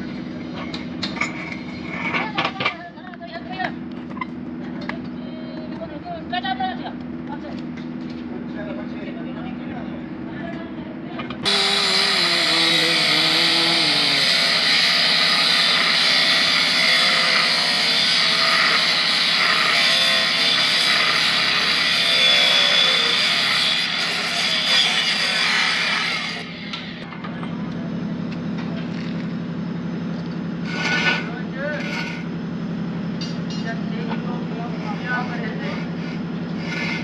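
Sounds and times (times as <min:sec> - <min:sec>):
angle grinder cutting steel: 0:11.4 - 0:27.0.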